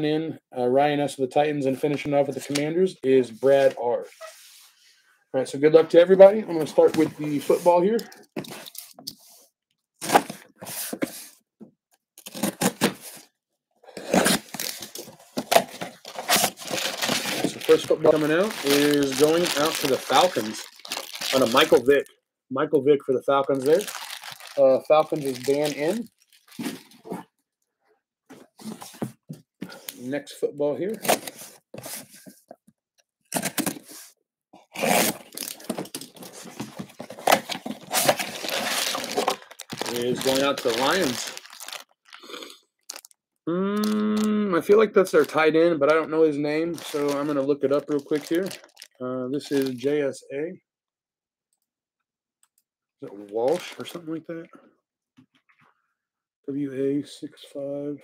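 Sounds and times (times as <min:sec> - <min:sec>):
packing tape ripping: 0:12.2 - 0:13.0, 0:14.0 - 0:21.9, 0:34.7 - 0:42.2.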